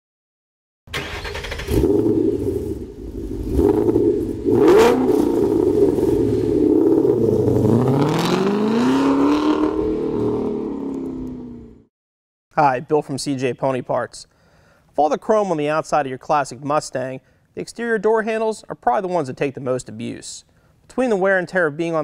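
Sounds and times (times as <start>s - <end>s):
car engine revving: 1.0s - 11.8s
person talking: 12.5s - 14.3s.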